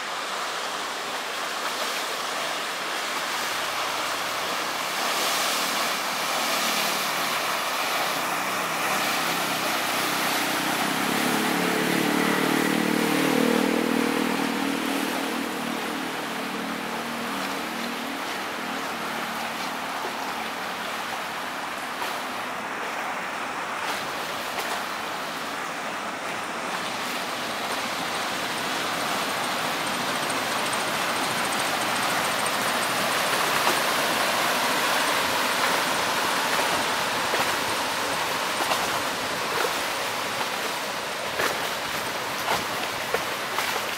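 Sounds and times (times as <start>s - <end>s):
water churning along ship hull: 0.0s - 43.9s.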